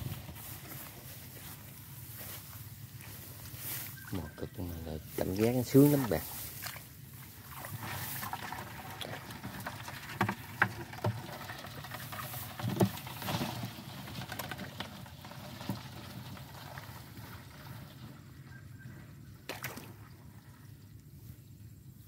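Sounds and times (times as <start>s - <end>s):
hand digging in wet mud: 4.6s - 14.2s
sharp smacks in mud: 19.5s - 20.0s.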